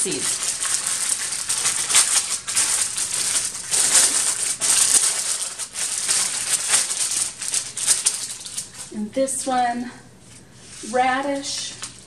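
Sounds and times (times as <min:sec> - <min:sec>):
paper packets rustling: 0:00.0 - 0:09.0, 0:11.2 - 0:12.0
seeds rattling: 0:00.0 - 0:09.0.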